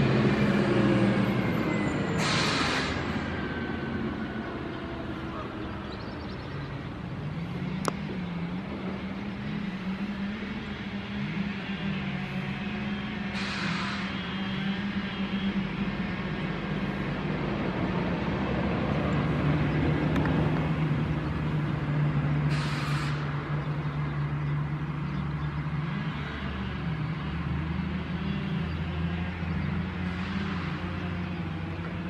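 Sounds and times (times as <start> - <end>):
heavy vehicle engine droning: 0.0 - 32.0
short hiss: 2.2 - 3.0, 13.4 - 14.0, 22.5 - 23.2.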